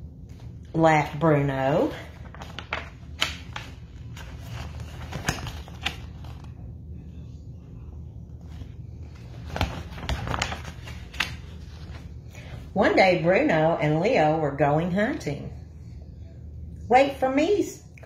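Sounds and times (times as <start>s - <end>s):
steady low hum: 0.0s - 18.0s
book pages rustling: 2.1s - 6.7s, 8.3s - 12.3s.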